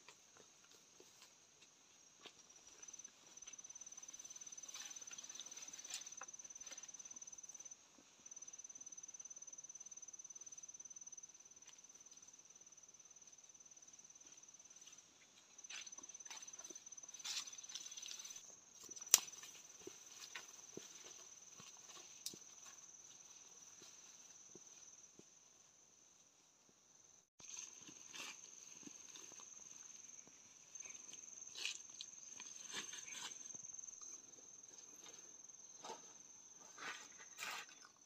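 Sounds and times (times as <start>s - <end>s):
rustling of leaves: 4.0s - 6.9s, 16.2s - 24.6s, 27.4s - 33.6s.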